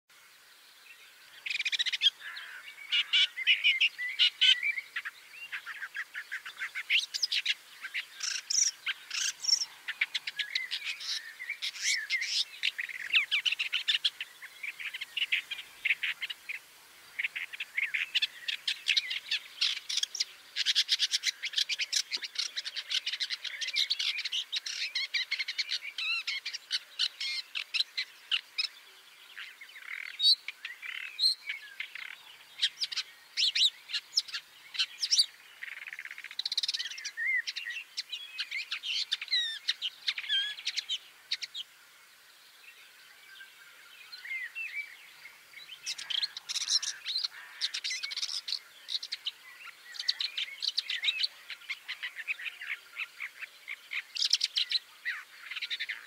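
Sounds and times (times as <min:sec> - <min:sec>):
bird singing chirps and whistles: 0:29.4 - 0:41.6.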